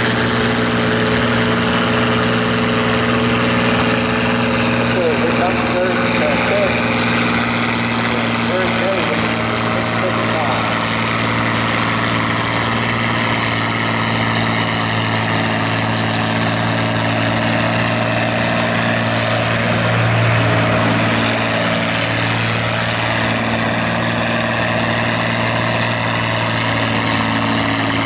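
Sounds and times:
tractor engine running under load: 0:00.0 - 0:28.0.

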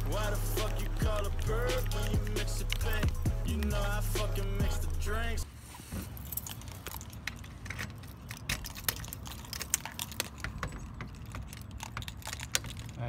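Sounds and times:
keys jangling at a door lock: 0:06.1 - 0:13.0.

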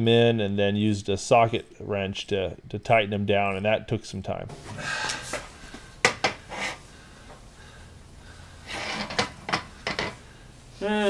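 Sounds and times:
breathy noises: 0:04.6 - 0:11.0.

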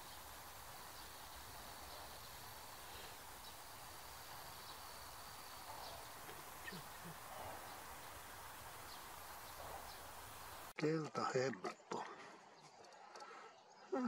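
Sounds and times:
distant bird chirps: 0:00.0 - 0:10.7, 0:11.8 - 0:14.0
high insect-like whine: 0:00.0 - 0:10.7
steady hiss: 0:00.0 - 0:10.8.

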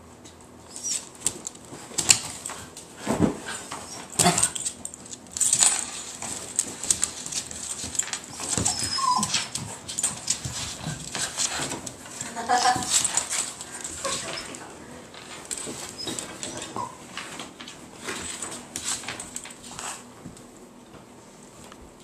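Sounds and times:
dog whining: 0:00.7 - 0:01.2, 0:03.6 - 0:04.6, 0:08.2 - 0:10.5, 0:14.0 - 0:14.7, 0:15.8 - 0:17.1.

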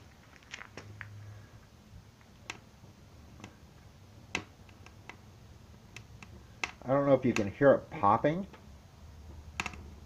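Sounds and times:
firewood popping and crackling: 0:00.0 - 0:07.6.

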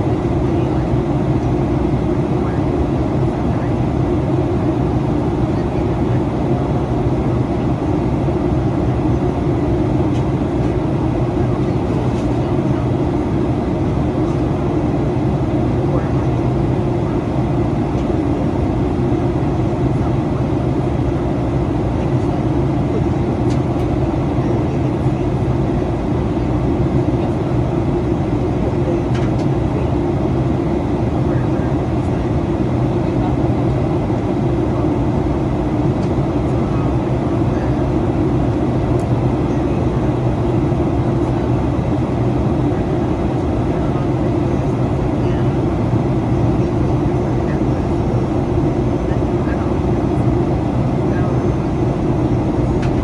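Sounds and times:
airplane cabin roar: 0:00.0 - 0:53.0.

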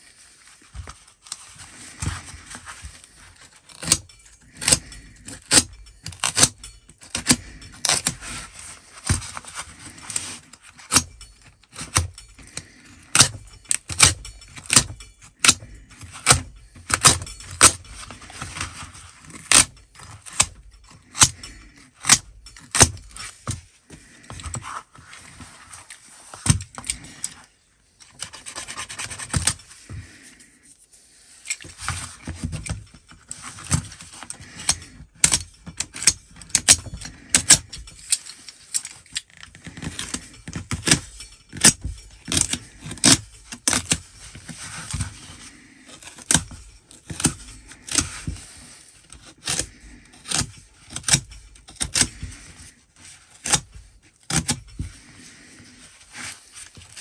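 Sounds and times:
utility knife scraping through cover: 0:31.5 - 0:57.0.

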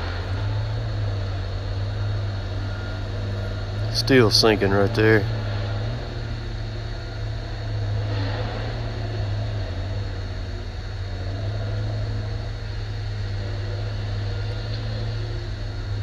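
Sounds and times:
engine humming: 0:00.0 - 0:16.0.

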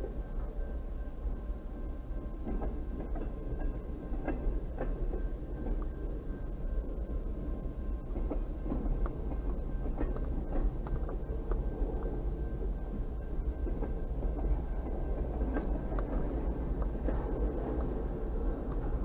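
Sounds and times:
train wheels rumbling on rails: 0:00.0 - 0:19.0.

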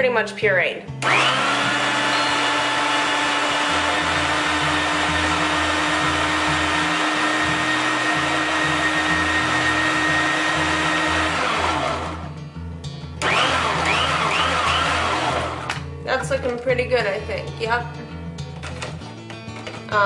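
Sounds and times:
food processor motor whining: 0:01.0 - 0:12.3, 0:13.2 - 0:15.8.

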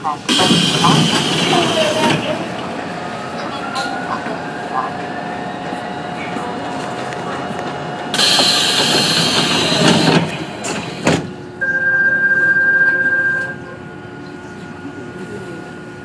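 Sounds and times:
subway train running through tunnel: 0:00.0 - 0:16.0
loud rushing hiss: 0:00.3 - 0:02.9, 0:07.9 - 0:11.3
steady high tone: 0:00.3 - 0:10.7.

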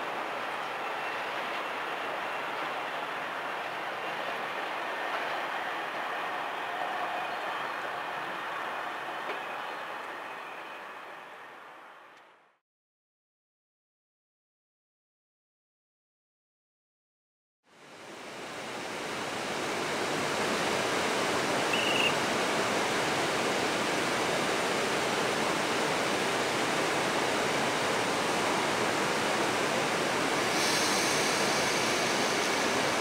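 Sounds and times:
faint high beep: 0:21.7 - 0:22.2
high hiss: 0:27.9 - 0:33.0.

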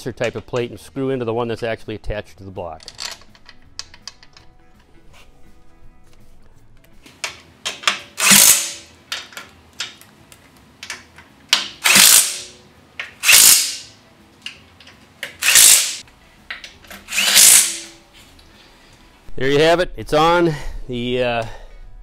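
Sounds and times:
power driver driving bolts: 0:07.1 - 0:10.0, 0:10.8 - 0:13.9, 0:14.5 - 0:18.0.

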